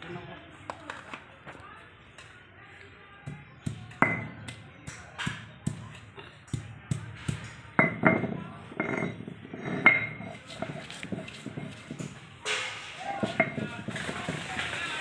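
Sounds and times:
stone pestle pounding on stone: 0:03.3 - 0:14.5.

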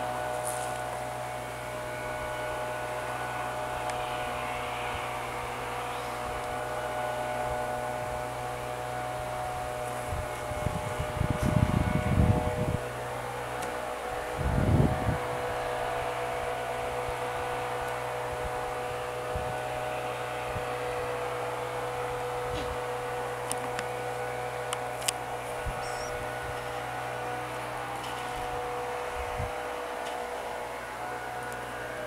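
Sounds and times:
steady droning hum: 0:00.0 - 0:32.0.

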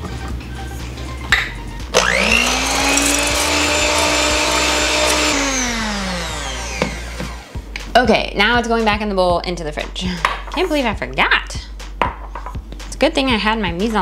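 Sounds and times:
immersion blender motor whine: 0:01.9 - 0:07.6.

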